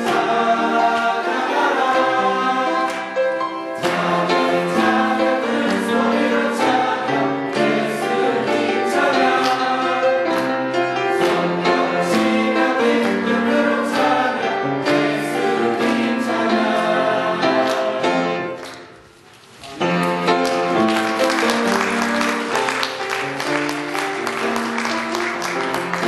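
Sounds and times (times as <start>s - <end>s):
mixed choir singing: 0.0s - 18.7s
music: 0.0s - 26.0s.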